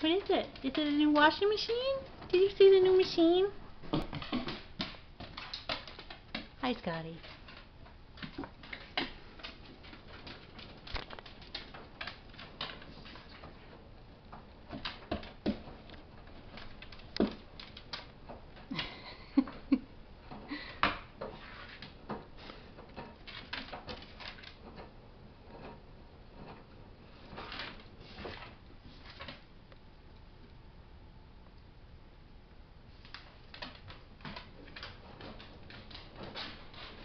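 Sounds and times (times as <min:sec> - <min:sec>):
dog claws clicking on floor: 0:03.8 - 0:19.2, 0:20.3 - 0:24.9, 0:33.0 - 0:37.0.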